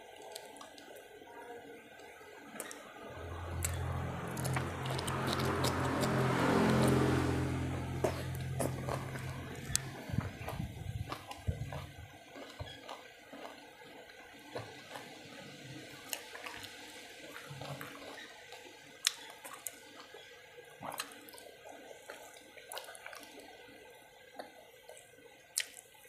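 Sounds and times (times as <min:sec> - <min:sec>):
person chewing food: 0:00.2 - 0:01.0, 0:03.4 - 0:20.2, 0:20.8 - 0:23.4, 0:25.6 - 0:25.8.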